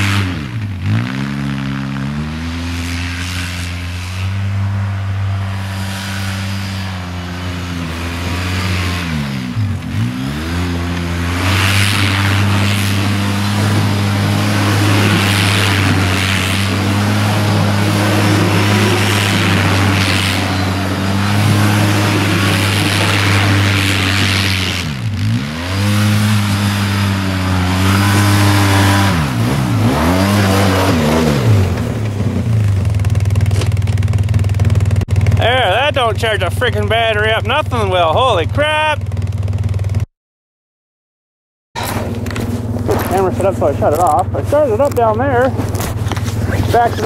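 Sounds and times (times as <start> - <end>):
quad bike engine running hard: 0.0 - 40.1, 41.8 - 47.0
tyres throwing snow: 1.8 - 33.8, 41.8 - 47.0.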